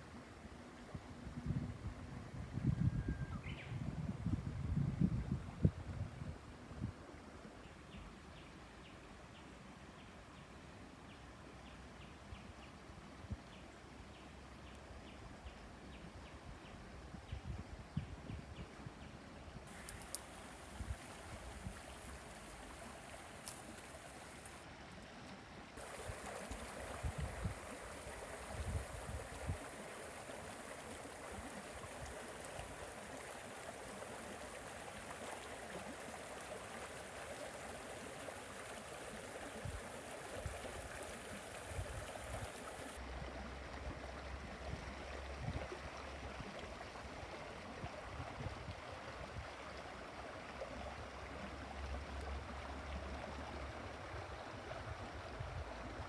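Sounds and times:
creek flowing over stones: 19.6s - 56.0s.

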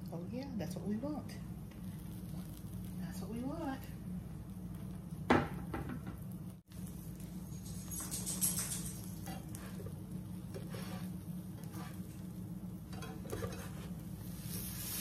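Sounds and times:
steady low hum: 0.0s - 15.0s
sandwich sizzling in frying pan: 1.6s - 7.8s, 9.0s - 15.0s
spatula scraping a pan: 10.5s - 12.2s, 12.9s - 15.0s.

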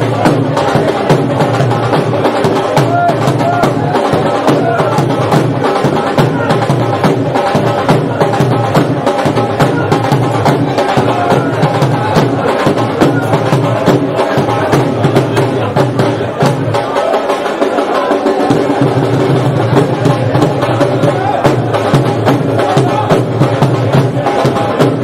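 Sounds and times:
crowd of men's voices: 0.0s - 25.0s
loud fast drumming: 0.0s - 25.0s.

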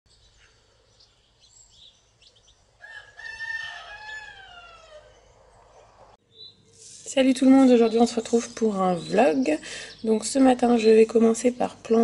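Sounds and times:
small birds chirping: 0.1s - 12.0s
rooster crowing: 2.8s - 5.4s.

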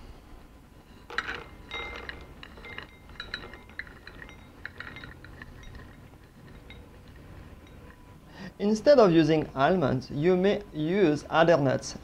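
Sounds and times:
faint glassy ring: 0.8s - 8.3s
almonds clicking into glass bowl: 1.1s - 7.2s.

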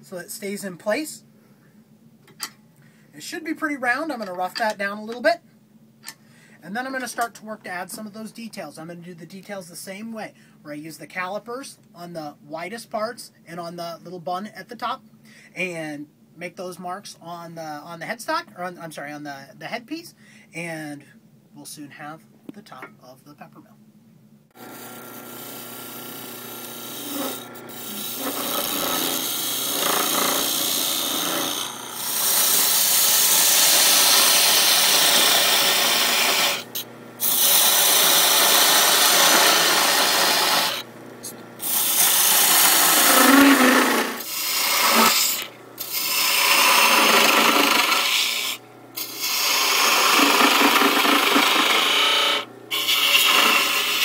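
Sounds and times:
lathe humming: 24.6s - 54.0s
turning tool scraping wood: 24.6s - 54.0s.

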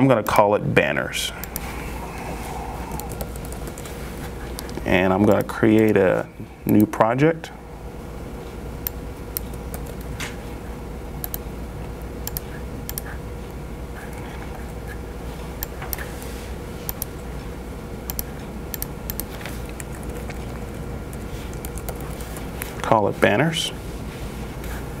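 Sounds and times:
low room hum: 0.0s - 25.0s
laptop keyboard typing clicks: 2.9s - 3.9s, 9.3s - 10.3s, 16.9s - 17.2s, 18.1s - 22.7s.

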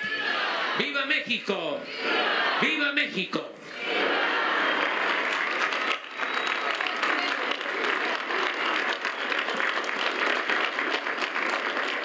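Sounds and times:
crowd applauding: 3.9s - 12.0s.

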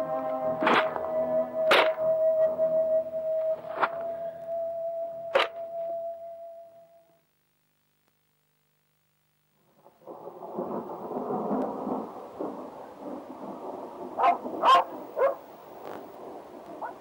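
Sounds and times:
thunder rumbling: 0.0s - 5.5s, 9.6s - 17.0s
dog barking: 14.2s - 15.4s, 16.8s - 17.0s.

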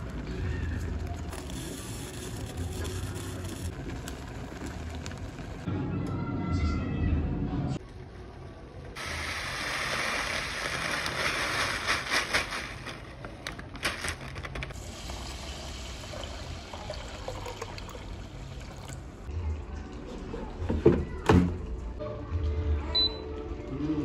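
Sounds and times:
water running: 14.8s - 19.2s.

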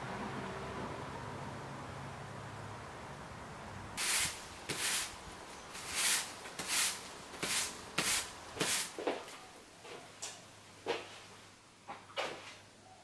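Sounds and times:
broom sweeping brick paving: 4.0s - 10.0s.

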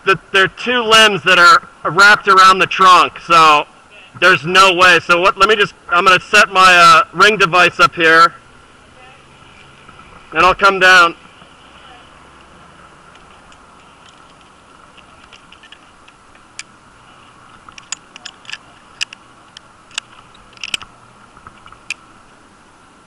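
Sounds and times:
metal rigging hardware clinking: 13.1s - 16.8s, 17.4s - 22.0s.

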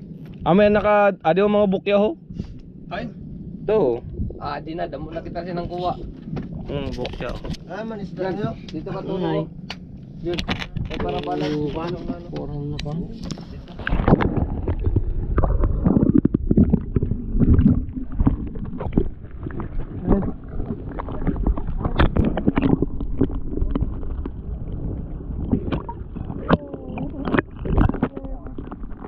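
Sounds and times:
water sloshing and gurgling: 0.0s - 29.0s
knocks and splashes: 13.7s - 24.5s, 25.4s - 29.0s.

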